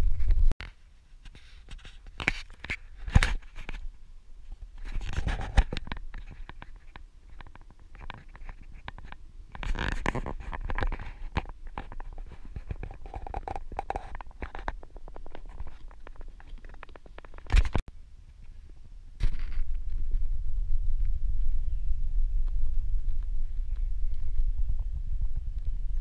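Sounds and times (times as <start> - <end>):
microphone handling scratches: 0.0 - 3.9, 4.5 - 17.9, 19.2 - 26.0
low wind rumble: 8.7 - 26.0.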